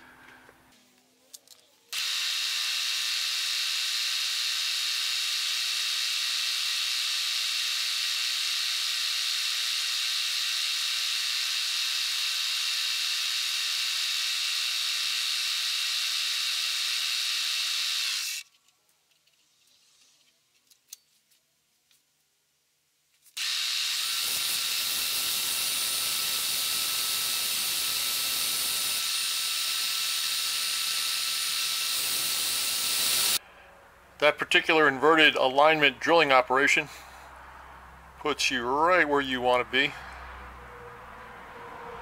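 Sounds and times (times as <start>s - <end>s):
machine spindle drilling metal: 23.4s - 33.4s
motor whine with hiss: 23.4s - 33.4s.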